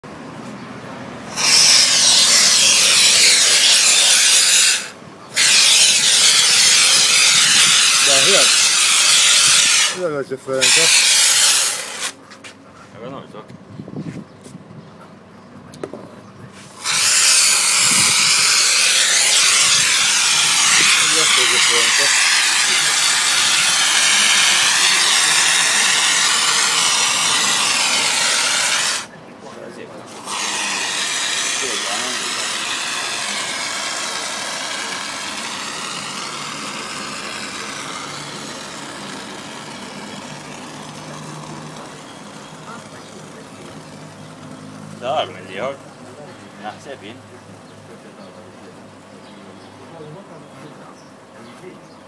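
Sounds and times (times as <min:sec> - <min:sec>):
expanding foam can hissing: 0:01.3 - 0:12.2, 0:16.6 - 0:29.1, 0:30.1 - 0:44.4.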